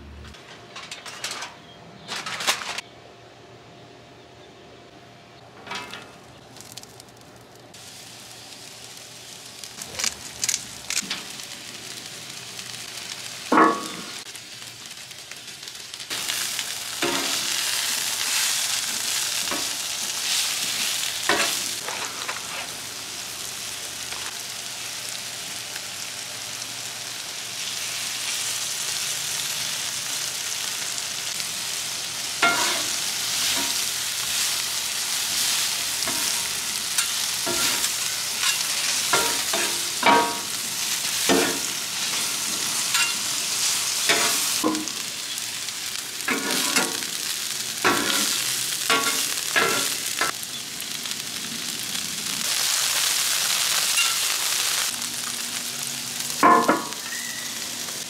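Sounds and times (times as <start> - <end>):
onions sizzling on griddle: 5.6 - 58.0
metal spatulas clanking and scraping: 32.4 - 33.8, 37.0 - 40.5, 42.9 - 43.2, 44.1 - 44.9, 47.9 - 50.0.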